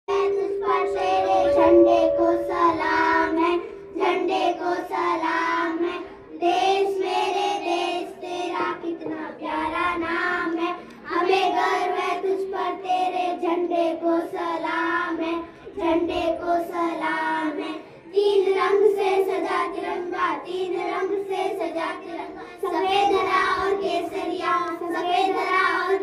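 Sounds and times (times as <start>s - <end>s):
held accompaniment note: 0.1s - 6.2s
children singing together: 0.1s - 26.0s.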